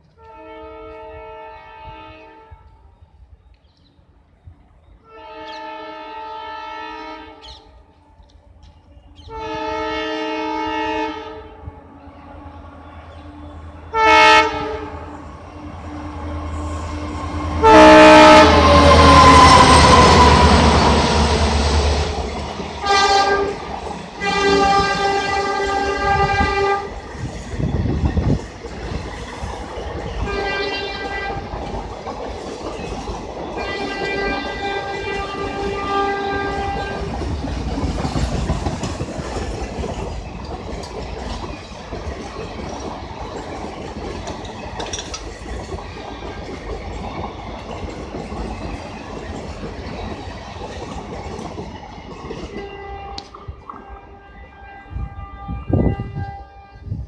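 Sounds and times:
locomotive horn: 0.1s - 2.9s, 5.0s - 8.3s, 9.2s - 22.2s, 22.8s - 27.0s, 30.2s - 31.7s, 33.6s - 37.2s, 52.4s - 57.0s
locomotive engine: 11.7s - 30.3s
coaches clattering over rail joints: 36.6s - 53.4s.

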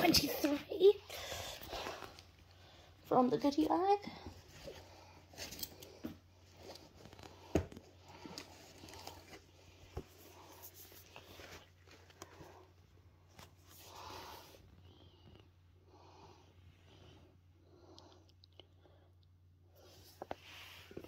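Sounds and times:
books rustling: 3.7s - 14.7s.

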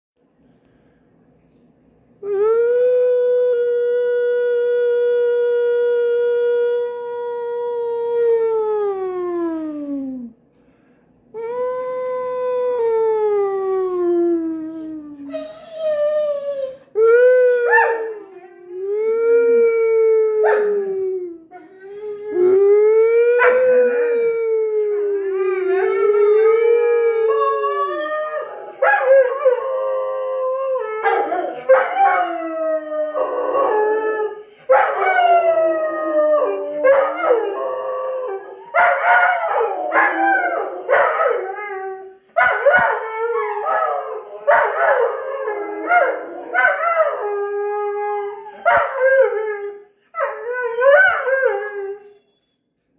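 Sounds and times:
dogs howling: 17.0s - 52.1s.

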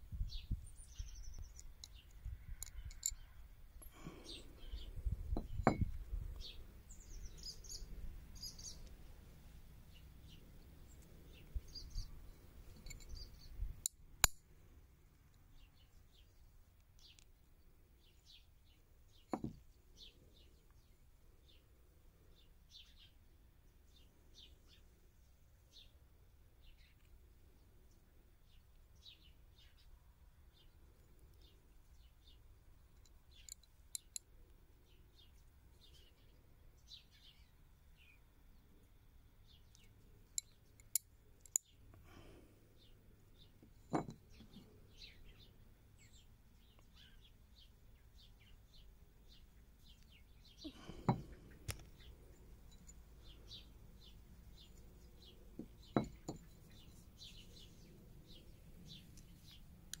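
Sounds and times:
faint bird chirps: 0.2s - 9.2s, 9.9s - 13.7s, 26.6s - 60.0s.

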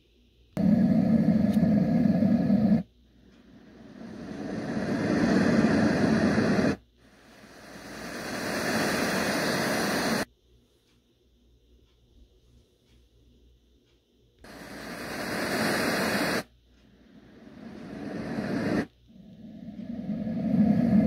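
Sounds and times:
sleep machine noise sounds: 0.0s - 21.0s.

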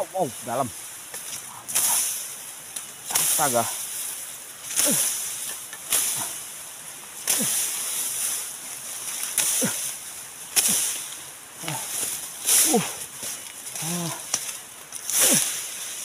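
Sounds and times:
grass and leaves rustling: 0.0s - 16.0s
person grunting: 4.8s - 5.1s, 7.3s - 7.6s, 9.5s - 9.9s, 11.6s - 12.0s, 12.6s - 13.0s, 13.8s - 14.3s.

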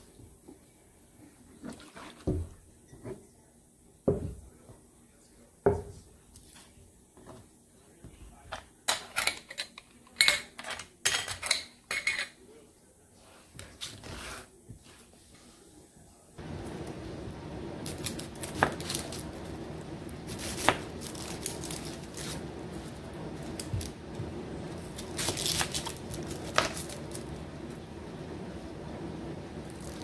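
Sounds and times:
metal lids clinking: 8.9s - 12.4s.

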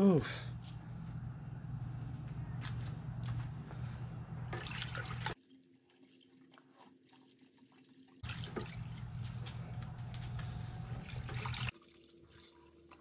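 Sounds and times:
steady low hum: 0.0s - 5.4s, 8.3s - 11.7s
water sloshing in a bucket: 4.5s - 13.0s.

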